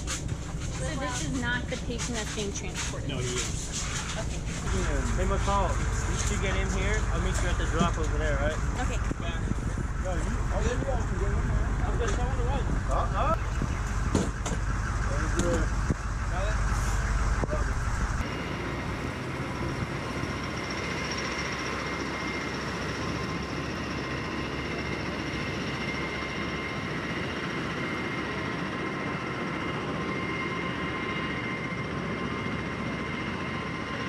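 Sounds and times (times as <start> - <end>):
diesel engine running: 0.0 - 30.1
thin high whine: 0.7 - 24.8.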